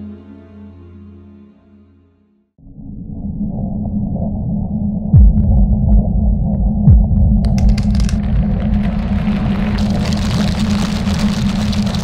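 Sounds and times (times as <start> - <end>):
deep low rumble: 2.6 - 12.0.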